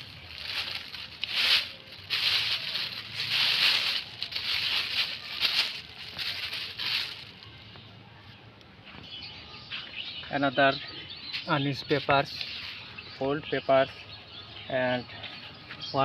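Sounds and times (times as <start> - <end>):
plastic bag rustling and crinkling: 0.0 - 7.6.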